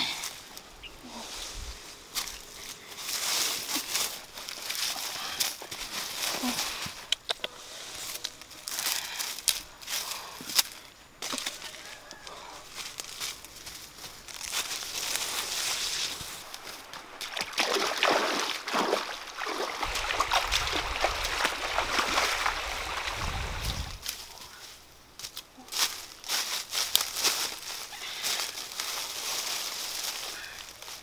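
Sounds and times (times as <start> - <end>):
rustling: 1.1 - 17.5
water sloshing and splashing: 16.3 - 24.0.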